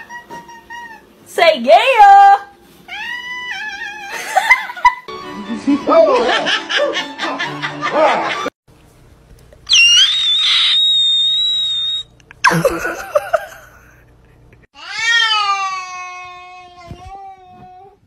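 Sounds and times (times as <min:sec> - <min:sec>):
cats meowing: 0:02.9 - 0:04.4.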